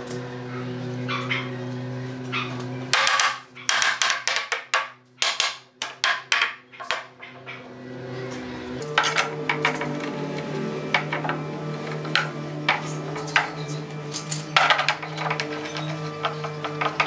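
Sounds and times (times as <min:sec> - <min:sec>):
wooden block knocking on boards: 0:02.9 - 0:07.2
steady music drone: 0:07.2 - 0:17.0.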